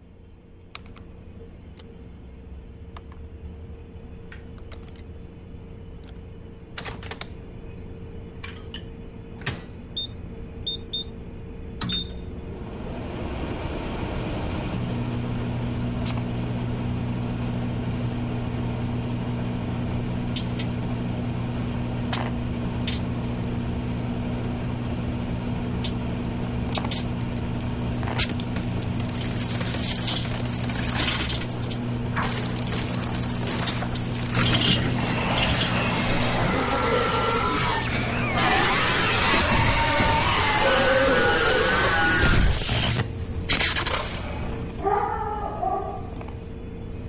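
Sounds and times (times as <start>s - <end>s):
microwave oven humming: 0.0s - 47.0s.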